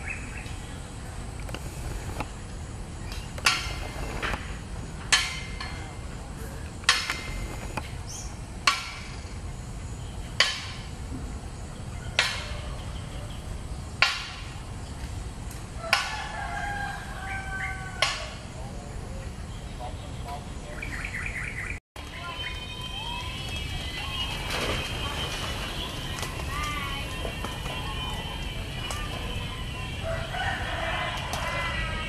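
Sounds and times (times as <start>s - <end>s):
sharp knocks with ringing tail: 8.6s - 9.2s.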